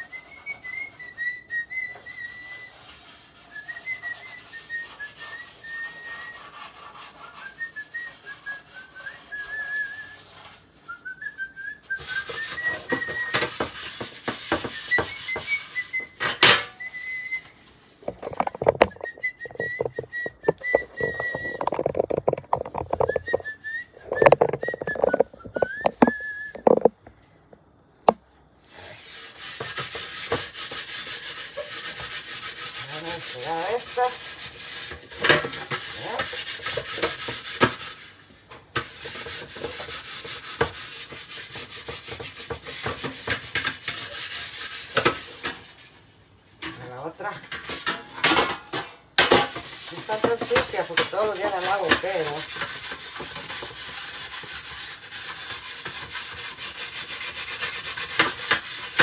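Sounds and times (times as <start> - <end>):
person whistling a tune: 0.0 - 2.8, 3.5 - 6.5, 7.3 - 10.2, 10.9 - 13.4, 14.7 - 17.6, 18.8 - 21.7, 23.0 - 26.7
scratchy scrubbing on a surface: 0.0 - 11.0, 12.0 - 16.2, 28.6 - 47.8, 49.2 - 59.0
clattering and knocking: 18.0 - 27.0.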